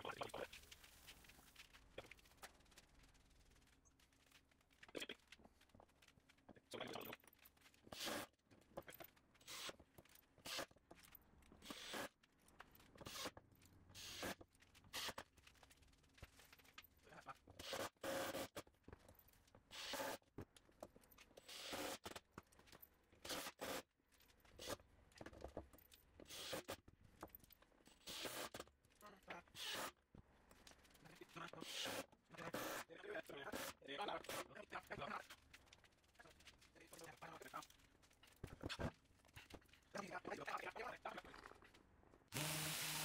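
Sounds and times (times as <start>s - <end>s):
cordless drill driving screws: 9.5s - 9.8s, 11.6s - 12.1s, 13.0s - 13.4s, 17.6s - 18.6s, 19.7s - 20.2s, 21.5s - 22.1s, 26.3s - 26.7s, 28.0s - 28.6s, 29.6s - 29.9s, 31.6s - 32.9s, 42.3s - 43.0s.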